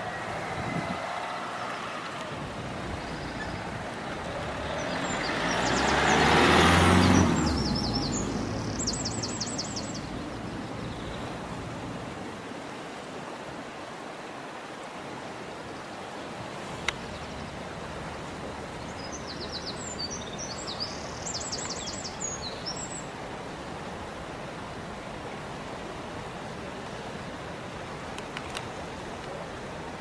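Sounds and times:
vehicle driving past: 0.0s - 9.2s
river rushing: 0.0s - 30.0s
small bird singing: 7.4s - 11.2s, 19.0s - 23.0s.

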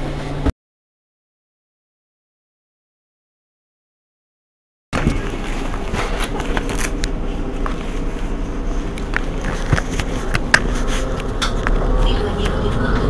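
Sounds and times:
bus engine idling: 5.0s - 13.0s.

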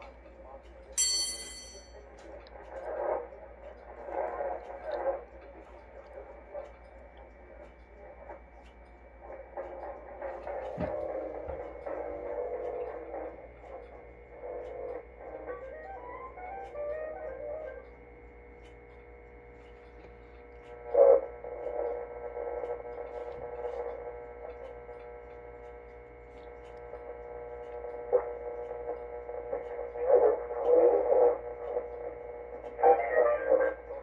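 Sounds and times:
mains hum: 0.0s - 34.0s
radio broadcast audio: 2.5s - 6.7s, 20.7s - 24.2s, 27.8s - 34.0s.

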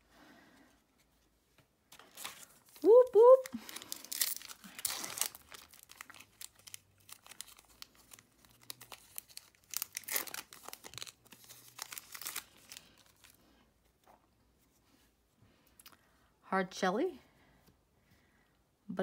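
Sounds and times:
foil wrapper tearing and crinkling: 2.0s - 13.4s.

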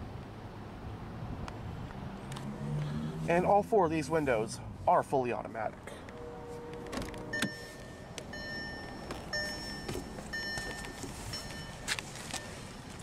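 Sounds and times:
car warning chime: 6.2s - 12.8s.

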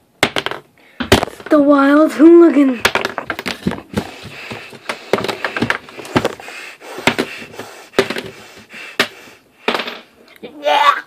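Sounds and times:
bullet casing clattering on table: 9.7s - 10.1s.

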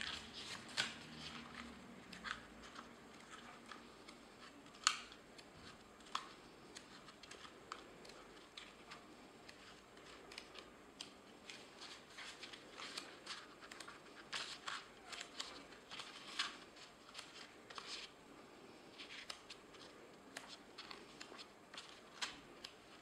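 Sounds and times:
pages being turned: 0.0s - 18.2s, 18.9s - 23.0s.

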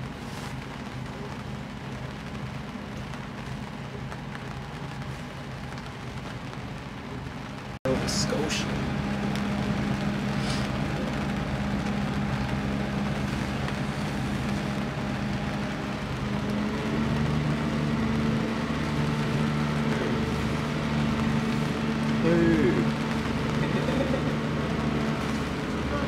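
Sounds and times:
boat engine running: 7.9s - 26.0s.

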